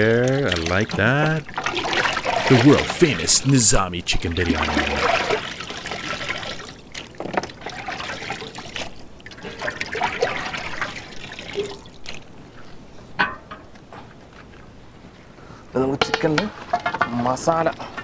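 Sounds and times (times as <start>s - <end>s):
water trickling and splashing: 0.0s - 12.8s.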